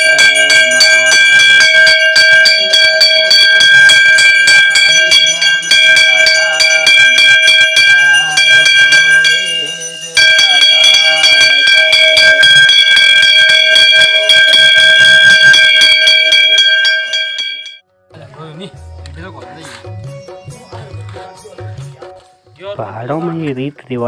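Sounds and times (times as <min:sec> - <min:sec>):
temple bell ringing: 0:00.0 - 0:17.8.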